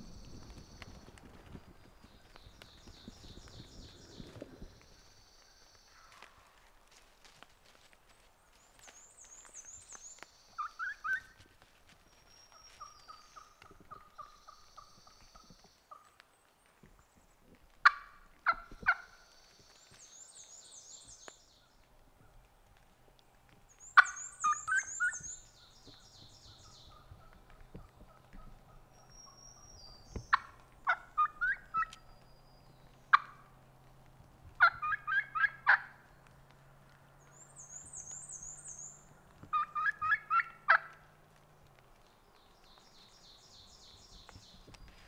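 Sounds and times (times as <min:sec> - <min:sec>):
turkey gobbling: 0:10.5 - 0:11.4, 0:12.6 - 0:16.1, 0:17.8 - 0:19.2, 0:24.0 - 0:25.2, 0:26.7 - 0:29.1, 0:30.3 - 0:32.0, 0:33.1 - 0:33.5, 0:34.6 - 0:36.0, 0:39.1 - 0:41.1
songbird trilling: 0:23.8 - 0:27.1
turkey single call: 0:34.6 - 0:35.9, 0:39.5 - 0:41.0.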